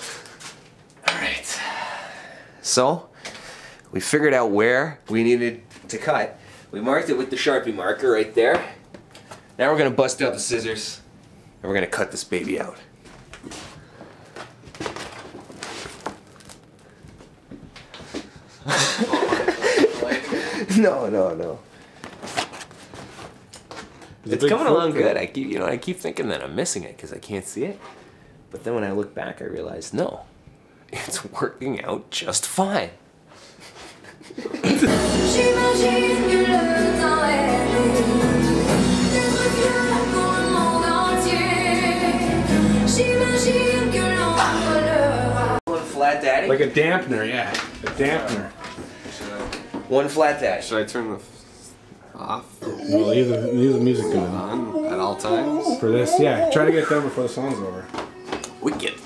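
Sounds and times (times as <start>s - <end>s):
recorded song with singing: 34.6s - 45.6s, 57.1s - 59.0s.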